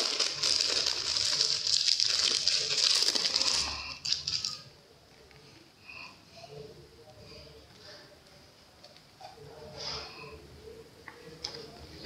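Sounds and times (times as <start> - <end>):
plastic sleeve crinkling: 0.0 - 4.7.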